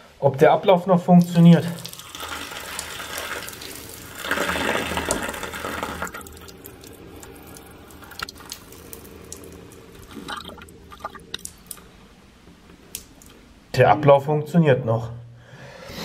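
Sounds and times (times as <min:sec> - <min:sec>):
water dripping: 0:00.7 - 0:13.6
urine stream splashing: 0:01.2 - 0:12.0.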